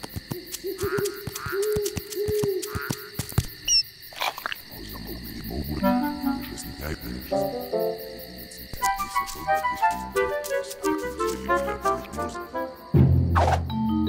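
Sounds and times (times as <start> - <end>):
low hooting phrase: 4.6 - 12.5.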